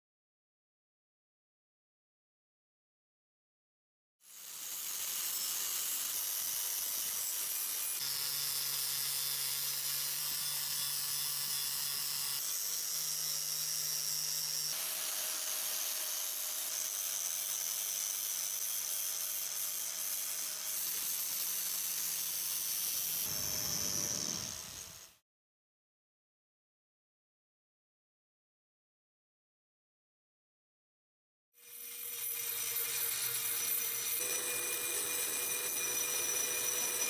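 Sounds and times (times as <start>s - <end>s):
angle grinder grinding steel: 4.2s - 25.2s, 31.6s - 37.0s.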